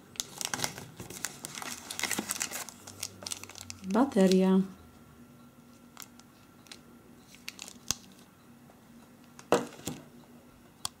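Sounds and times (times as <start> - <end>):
plastic bag crinkling: 0.2 - 4.6, 6.0 - 8.2.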